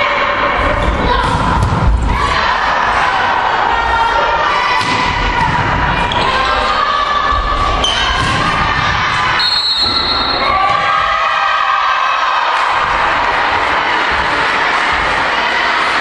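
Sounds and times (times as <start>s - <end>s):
crowd shouting and cheering: 0.0s - 16.0s
volleyball thuds: 1.1s - 2.2s, 7.8s - 11.0s.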